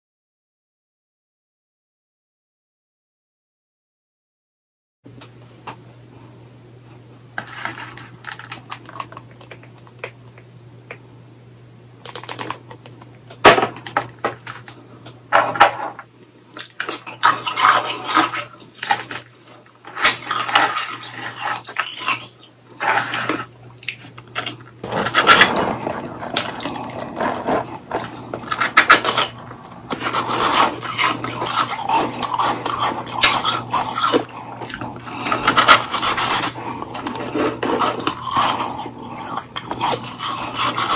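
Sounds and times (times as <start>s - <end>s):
low steady hum: 5.1s - 40.9s
crunching shaved ice: 16.6s - 40.9s.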